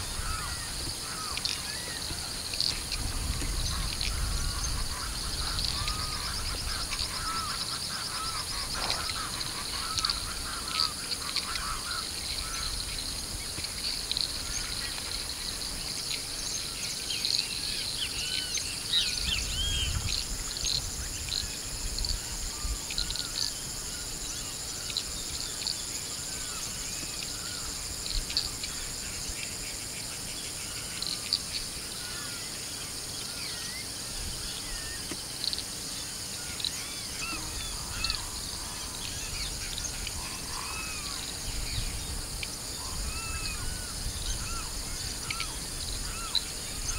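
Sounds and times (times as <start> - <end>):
wind rumble on microphone: 0.0 - 16.0, 18.9 - 24.3, 37.5 - 46.9
birds chirping and calling: 0.0 - 46.9
high insect drone: 0.0 - 46.9.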